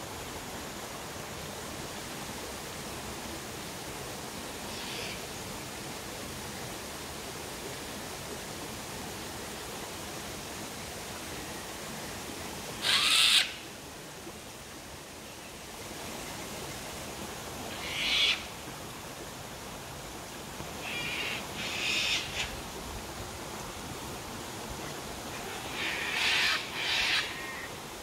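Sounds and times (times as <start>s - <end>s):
cockatoos screeching: 12.8s - 13.5s, 25.7s - 27.7s
waterfall rushing: 16.0s - 28.0s.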